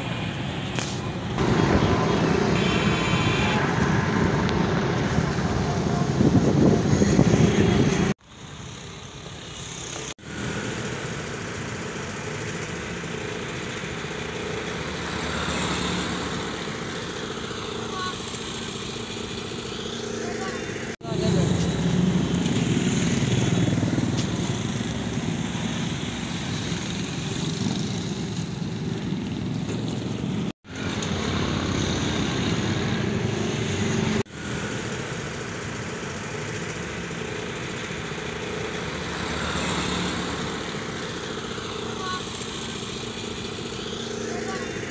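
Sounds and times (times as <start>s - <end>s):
motorcycles passing: 0.0s - 8.2s, 9.0s - 44.9s
road traffic: 0.0s - 44.9s.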